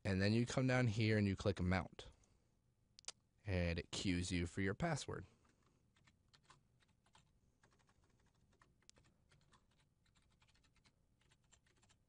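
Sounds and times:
faint keyboard typing: 5.2s - 12.0s.

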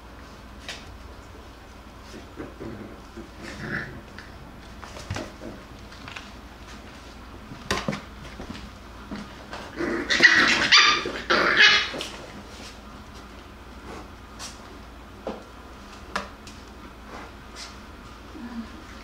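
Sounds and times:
puppies scuffling: 0.2s - 14.7s
puppies barking: 9.9s - 12.1s
puppies yipping: 10.1s - 12.1s.

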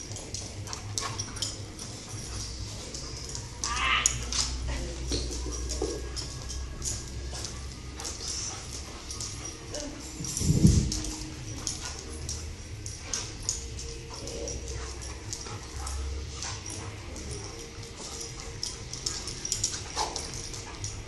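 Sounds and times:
dog claws clicking on floor: 0.0s - 21.0s
dog whine: 2.9s - 4.7s.

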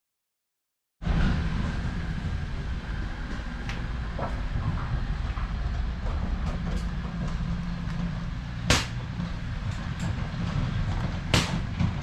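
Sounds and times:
wind rumble on microphone: 1.0s - 12.0s
sharp crack: 8.6s - 9.1s, 11.3s - 11.8s.

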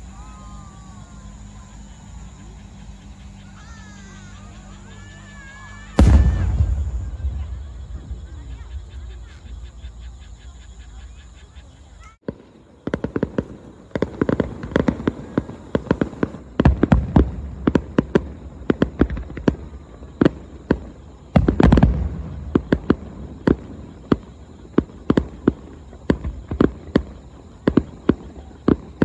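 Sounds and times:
firework shells bursting: 5.8s - 10.2s
low rumble: 6.0s - 10.8s.

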